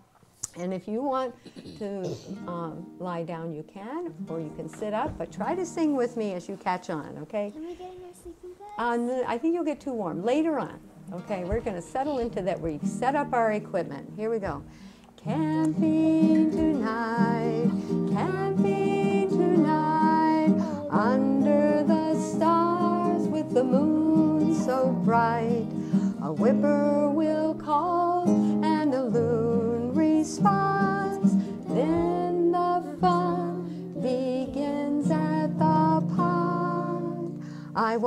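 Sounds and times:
acoustic guitar: 0:00.0 - 0:38.0
woman singing: 0:11.4 - 0:38.0.

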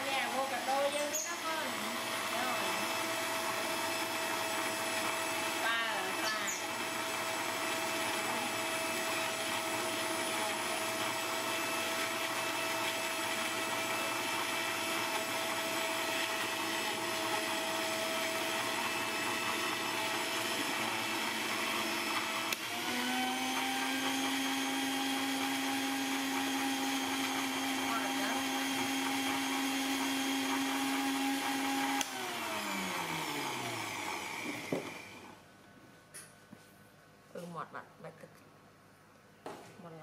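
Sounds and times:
blender motor whining: 0:00.0 - 0:35.4
blender switch click: 0:22.5 - 0:22.7, 0:31.9 - 0:32.2.

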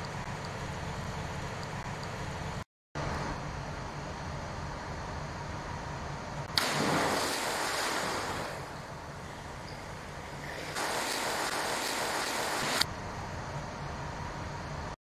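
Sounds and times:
splash of diving into water: 0:06.5 - 0:08.9, 0:10.4 - 0:12.9
water churning: 0:06.6 - 0:12.9.

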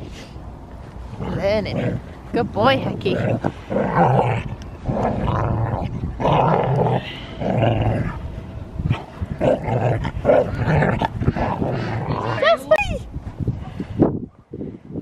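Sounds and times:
dogs play-growling: 0:01.1 - 0:08.2, 0:08.8 - 0:12.4.

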